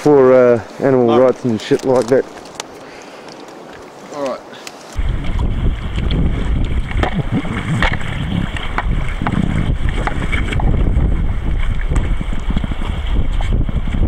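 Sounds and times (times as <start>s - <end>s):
river water washing: 0.0s - 13.6s
small water splashes: 1.4s - 10.8s
wind rumbling on microphone: 5.0s - 14.0s.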